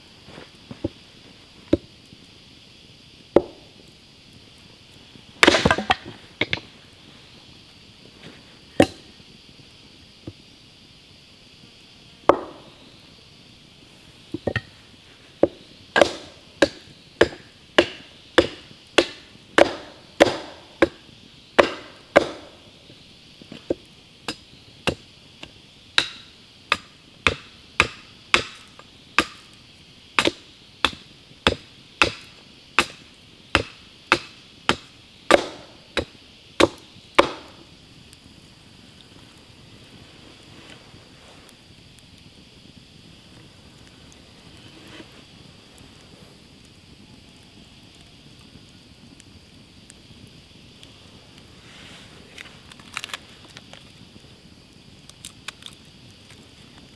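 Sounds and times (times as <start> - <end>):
wooden baton striking log: 3.4 - 3.6, 5.4 - 6.6, 12.3 - 12.6, 15.4 - 21.0, 21.6 - 22.5, 33.6 - 37.5.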